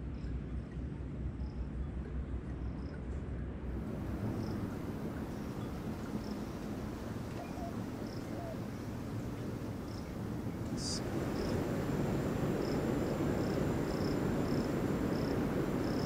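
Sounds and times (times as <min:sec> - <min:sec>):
low rushing background: 0:03.7 - 0:16.0
high insect chirps: 0:03.8 - 0:16.0
thin high whine: 0:03.8 - 0:16.0.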